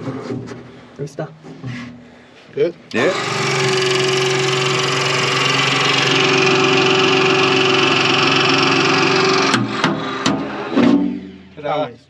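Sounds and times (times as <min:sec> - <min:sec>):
hydraulic tool running: 0:02.9 - 0:11.5.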